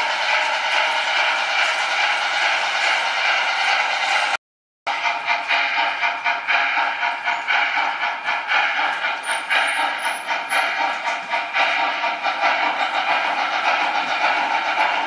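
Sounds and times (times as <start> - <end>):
model steam locomotive chuffing: 0.0 - 15.0.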